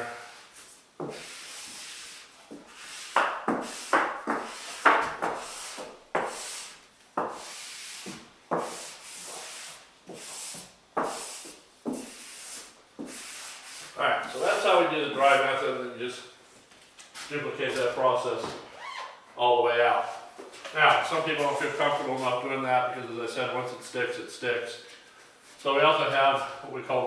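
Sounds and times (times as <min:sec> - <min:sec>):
rubbing strokes on backdrop: 0:00.0 - 0:15.6.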